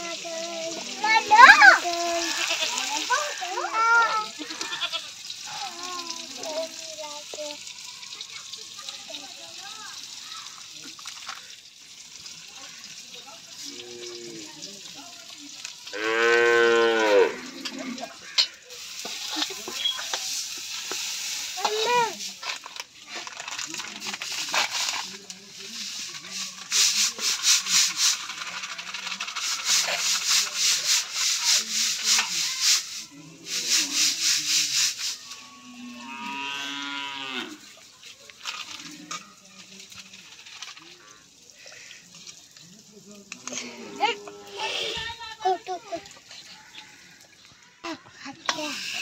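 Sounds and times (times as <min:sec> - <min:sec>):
onion and tomato sizzling in oil: 0:00.0 - 0:49.0
cow mooing: 0:15.9 - 0:18.1, 0:35.3 - 0:37.6, 0:43.6 - 0:45.0
spoon stirring and scraping pan: 0:17.6 - 0:23.4.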